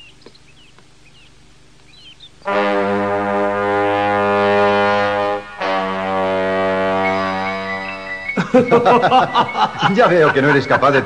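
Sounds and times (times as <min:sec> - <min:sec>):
birds chirping: 0:00.0 - 0:02.9, 0:04.3 - 0:11.0
brass fanfare: 0:02.4 - 0:08.4.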